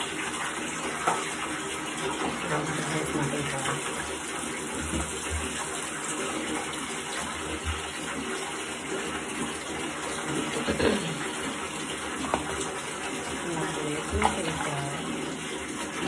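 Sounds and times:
water running from tap: 0.0 - 16.0.

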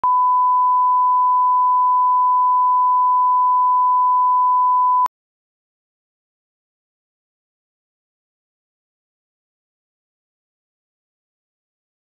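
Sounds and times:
steady test tone beep: 0.0 - 5.1.

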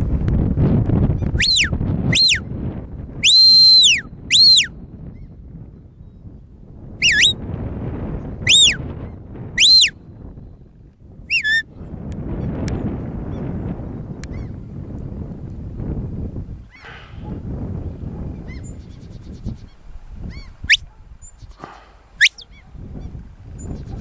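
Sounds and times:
wind on microphone: 0.0 - 24.0
shepherd's whistle blasts: 1.4 - 2.4, 3.2 - 4.7, 7.0 - 7.4, 8.5 - 8.8, 9.6 - 10.0, 11.3 - 11.6, 22.2 - 22.5.

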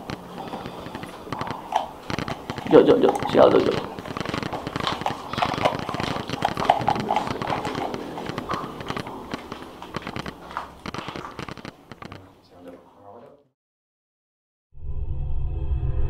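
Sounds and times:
rapid clicking and knocking: 0.0 - 12.3.

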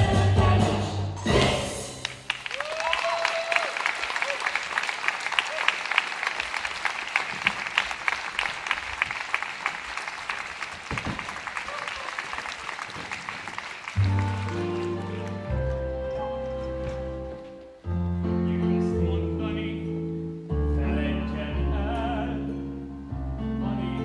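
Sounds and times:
audience applauding: 2.0 - 17.1
crowd whooping: 2.4 - 4.8.

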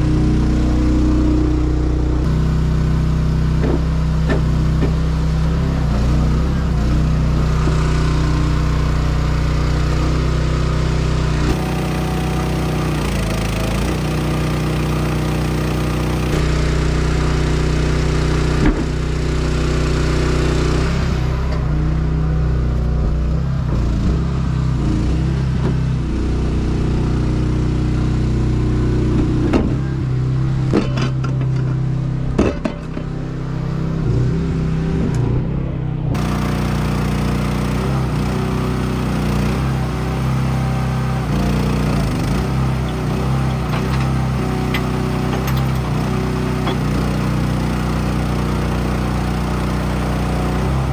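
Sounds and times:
engine running: 0.0 - 50.9
sharp knocks and clatters: 3.6 - 5.0, 30.7 - 31.8, 32.4 - 33.2, 43.0 - 47.1.

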